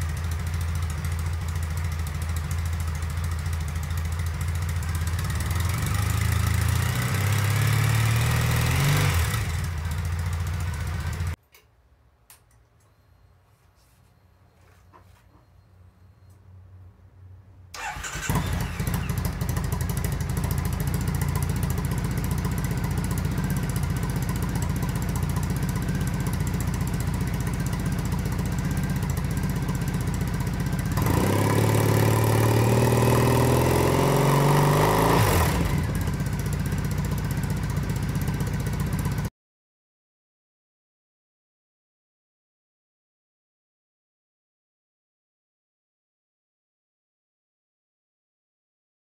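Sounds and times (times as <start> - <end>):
motorcycle engine idling and revving: 0.0 - 11.4, 17.8 - 39.3.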